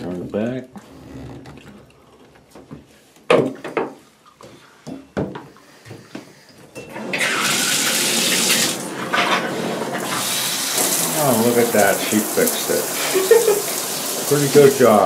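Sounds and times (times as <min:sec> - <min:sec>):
water running into bathtub: 0:06.9 - 0:15.0.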